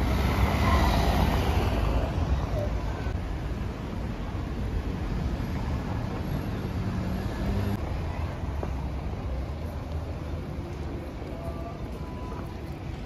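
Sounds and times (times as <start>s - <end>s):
low traffic rumble: 0.0s - 13.0s.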